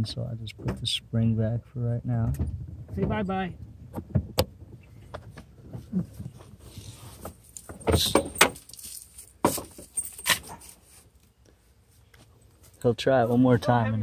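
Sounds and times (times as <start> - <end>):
metallic clinks and knocks: 7.3 - 10.8.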